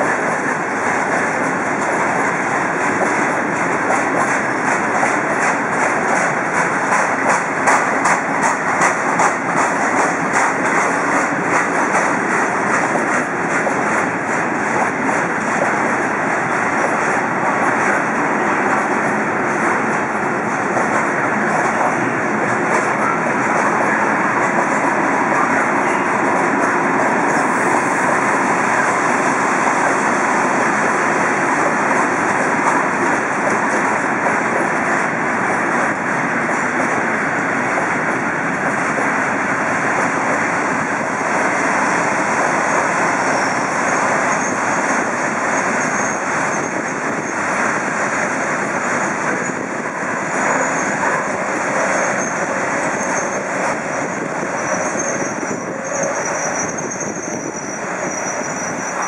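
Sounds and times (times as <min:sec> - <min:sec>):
train wheels rolling on rails: 0:00.0 - 0:59.0.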